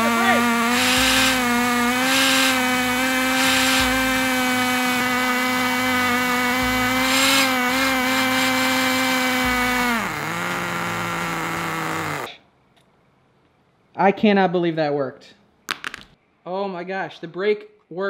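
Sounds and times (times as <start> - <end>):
pencil grinding bursts: 0.0 - 12.3
small two-stroke engine running: 0.0 - 12.3.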